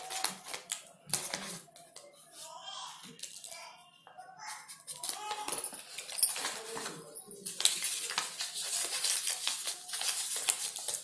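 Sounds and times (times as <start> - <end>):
sharp paper crackles: 0.0 - 2.0, 4.8 - 11.0
stiff paper rustling and crinkling: 4.7 - 11.0.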